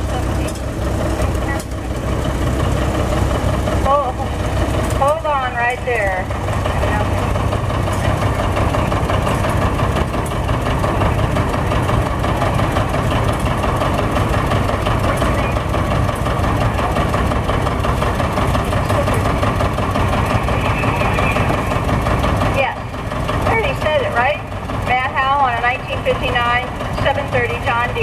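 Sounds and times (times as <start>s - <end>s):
tractor engine idling: 0.0s - 28.0s.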